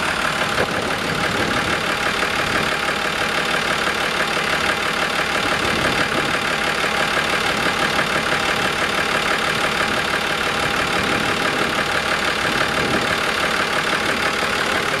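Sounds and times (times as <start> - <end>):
diesel engine idling: 0.0 - 15.0.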